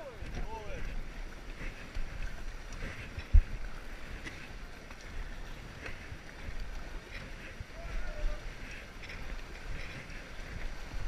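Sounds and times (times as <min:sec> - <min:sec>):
river water rushing: 0:00.0 - 0:11.0
wind buffeting microphone: 0:00.0 - 0:11.0.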